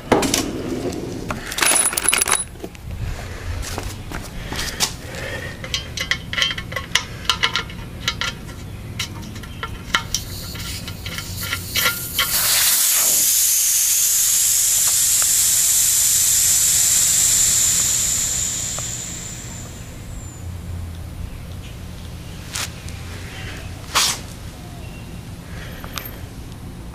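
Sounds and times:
clicking and tapping at valve: 5.1 - 13.2
compressed air hissing from valve: 10.1 - 20.6.

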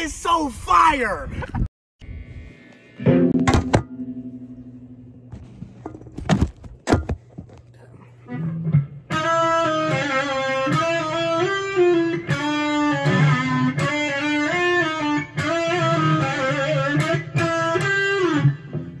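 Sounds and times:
electric guitar melody: 2.0 - 5.6, 8.2 - 19.0.

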